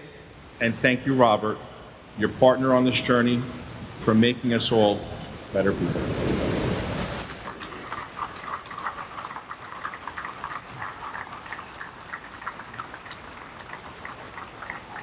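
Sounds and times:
audience applauding: 7.5s - 15.0s.

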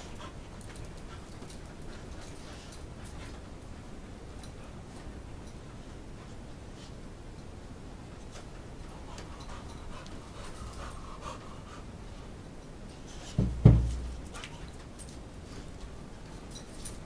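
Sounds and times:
dog panting: 0.0s - 4.8s, 8.9s - 12.1s
heavy thumps: 13.4s - 14.2s.

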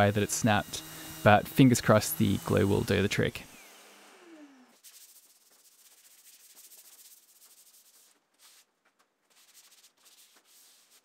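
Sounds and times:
hand sanding wood: 0.0s - 3.4s, 4.8s - 8.7s, 9.3s - 11.0s.

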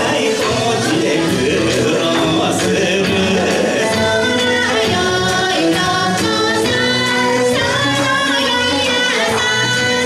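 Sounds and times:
person singing: 0.0s - 7.0s
band playing: 0.0s - 10.0s.

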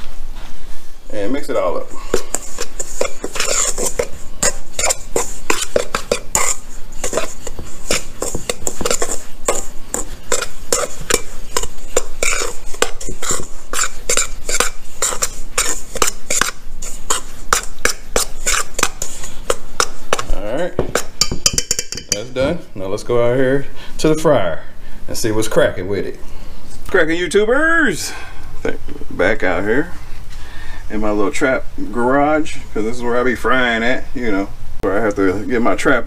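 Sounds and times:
spoon scraping metal bowl: 1.8s - 22.4s.

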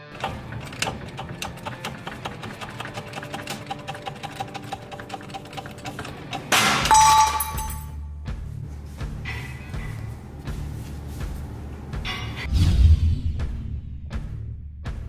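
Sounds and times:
loud crack of bearing: 0.1s - 7.8s
metallic ring: 6.5s - 8.0s.

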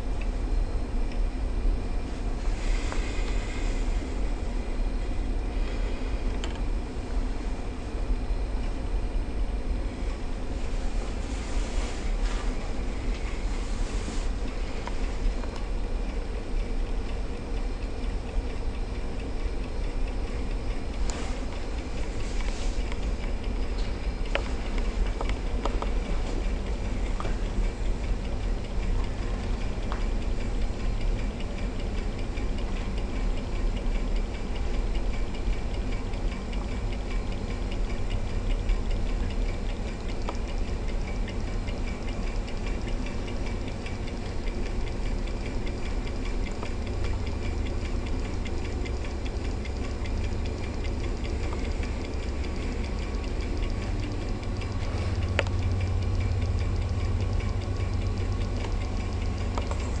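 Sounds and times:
low hum: 0.0s - 60.0s
engine mechanical ticking: 14.4s - 60.0s.

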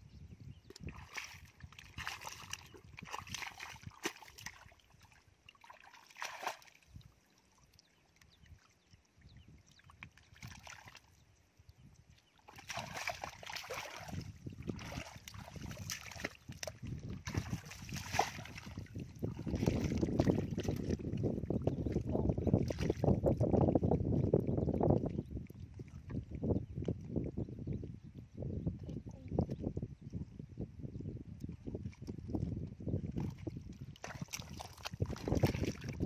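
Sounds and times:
feet and hands sloshing in mud: 0.6s - 8.7s, 9.4s - 11.3s, 12.2s - 24.2s, 31.8s - 36.0s.

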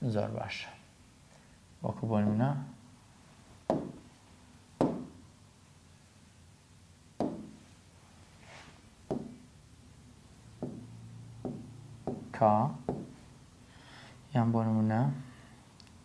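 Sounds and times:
stylus tapping on screen: 3.7s - 4.1s, 4.8s - 5.2s, 7.2s - 7.6s, 9.1s - 9.5s, 10.6s - 13.2s.

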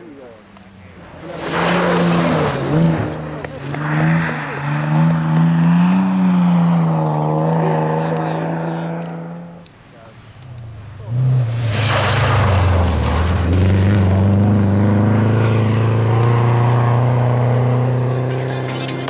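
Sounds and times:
rally car engine at high revs: 1.1s - 9.7s, 11.0s - 19.0s.

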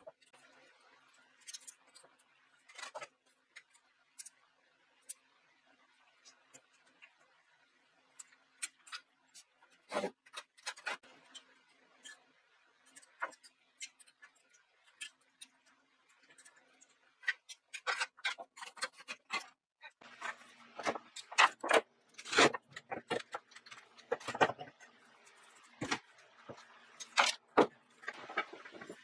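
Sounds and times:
objects being handled clicking: 12.8s - 29.0s.

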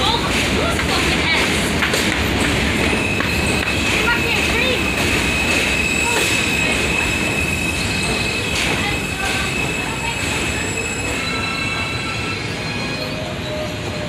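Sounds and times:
moving train rumble: 0.0s - 14.0s
train wheels squealing: 0.0s - 14.0s.

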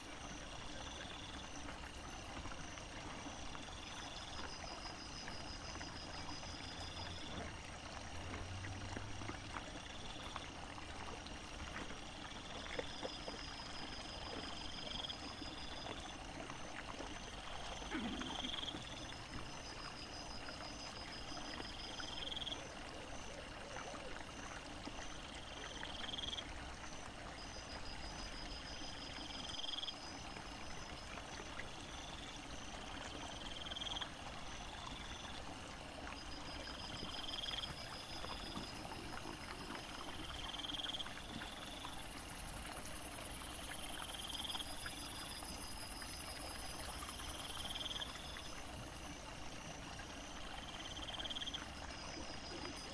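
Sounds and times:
running stream water: 0.0s - 52.9s.

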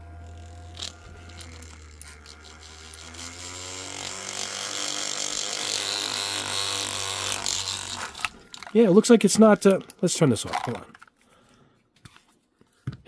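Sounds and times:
small battery motor humming: 0.0s - 8.8s
buzzing rattle: 0.0s - 10.9s.

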